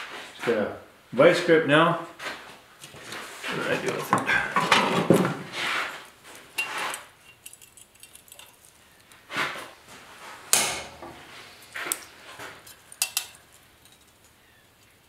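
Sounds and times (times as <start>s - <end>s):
metallic clinks and clatters: 6.5s - 8.8s, 12.6s - 14.4s.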